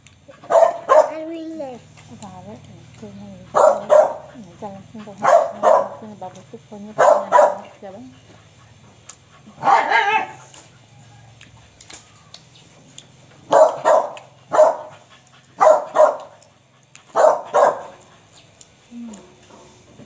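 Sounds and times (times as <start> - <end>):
dog barking: 0.3 - 1.3, 3.5 - 4.4, 5.2 - 6.0, 7.0 - 7.8, 9.6 - 10.5, 13.4 - 15.0, 15.6 - 16.4, 17.1 - 18.1.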